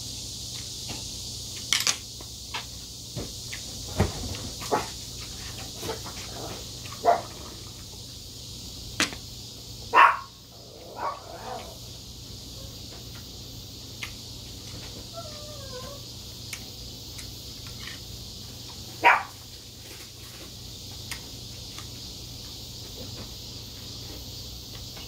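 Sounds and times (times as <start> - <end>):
small dog barking: 7.0 - 7.4, 9.9 - 11.8, 19.0 - 19.4.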